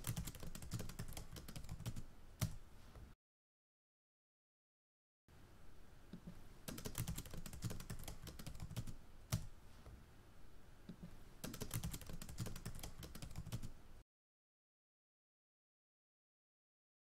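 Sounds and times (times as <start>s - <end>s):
typing on computer keyboard: 0.0s - 2.6s, 6.7s - 9.5s, 11.4s - 13.7s.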